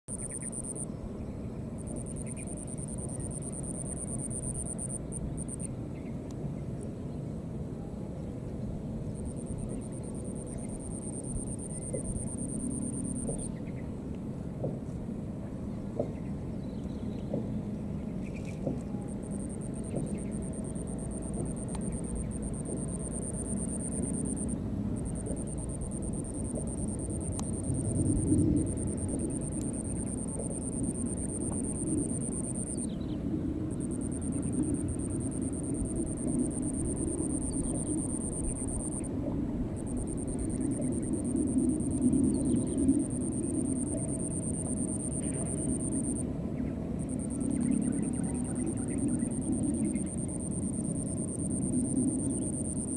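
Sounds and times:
insect trilling: 0.1s - 0.8s, 19.2s - 33.0s, 33.7s - 39.1s, 39.8s - 46.2s, 47.1s - 52.9s
steady low rumble: 0.1s - 52.9s.

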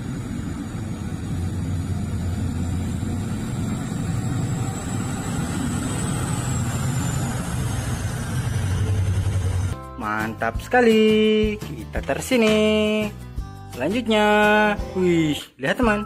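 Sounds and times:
truck diesel engine drone: 0.0s - 9.8s.

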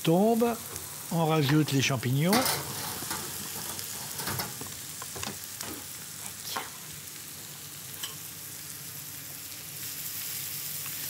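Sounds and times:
mushrooms sizzling in a frying pan: 0.0s - 11.0s
spatula knocking and scraping pan: 2.3s - 5.9s.

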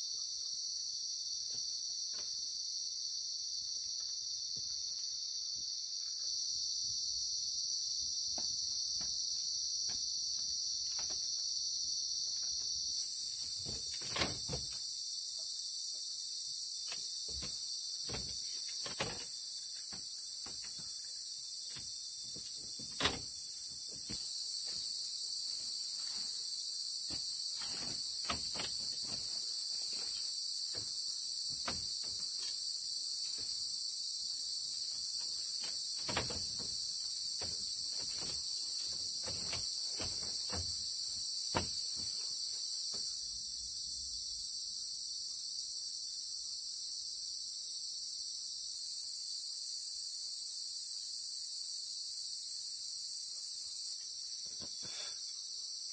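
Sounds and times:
crickets and insects droning: 0.0s - 55.9s
knocks and creaks on bamboo floor: 8.3s - 11.5s, 12.3s - 14.9s, 16.8s - 26.4s, 27.0s - 33.7s, 35.0s - 43.2s.

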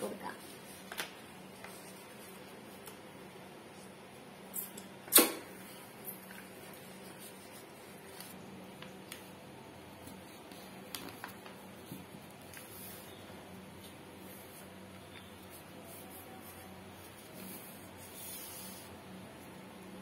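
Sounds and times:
paper rustling: 0.3s - 3.0s, 9.9s - 13.1s
sharp click: 4.6s - 5.4s.

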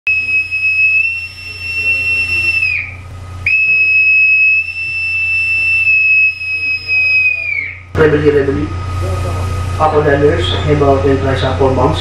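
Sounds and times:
boatswain's pipe whistle: 0.1s - 7.9s
steady low hum: 0.1s - 12.0s.

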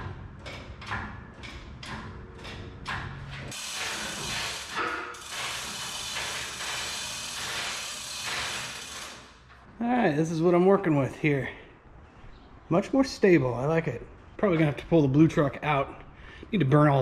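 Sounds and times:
mechanical ratchet clicking: 3.5s - 9.4s
harsh ratchet rattle: 3.5s - 9.5s.

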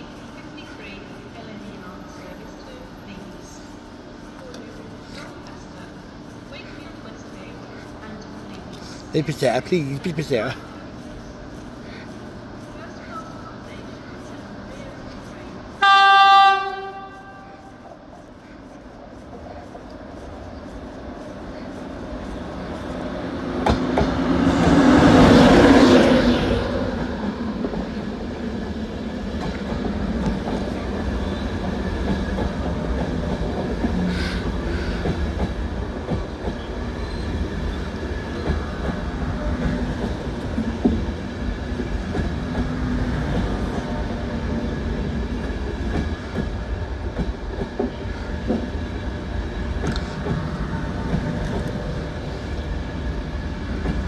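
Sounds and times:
train coaches rumbling and clacking: 0.0s - 54.0s
train cab rushing past: 22.0s - 54.0s.

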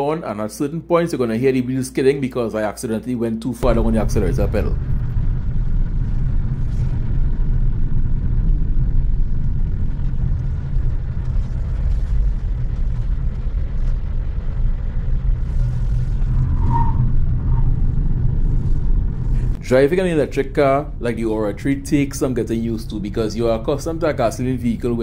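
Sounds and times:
road and tyre rumble: 3.6s - 19.8s.

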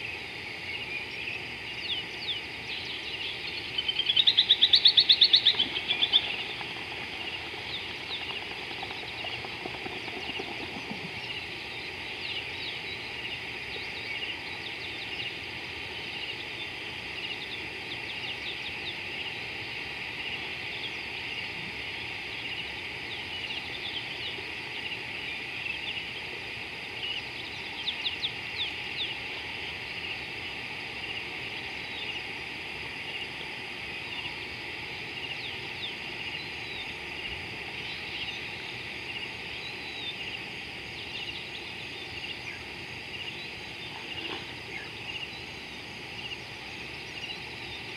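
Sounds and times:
rapid bird calls: 0.0s - 47.9s
high chirping chorus: 1.9s - 15.4s.

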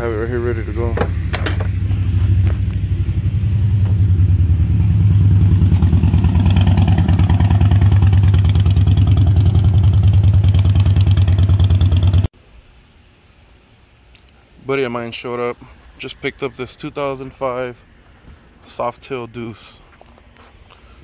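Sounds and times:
motorcycle engine running: 0.0s - 12.3s.

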